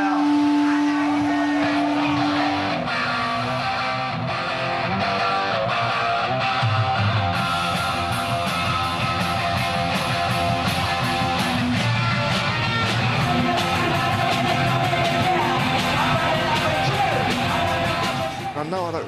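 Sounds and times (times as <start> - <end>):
electric guitar: 0.0 - 19.0
drum beat: 7.4 - 19.0.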